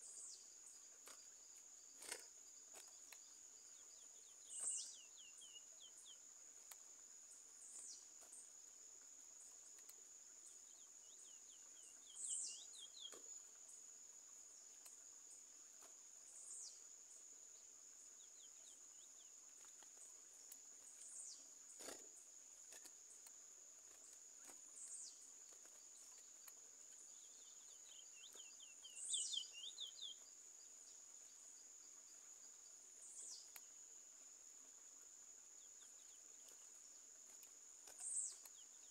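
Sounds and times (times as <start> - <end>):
small songbird singing: 0.0 - 38.9.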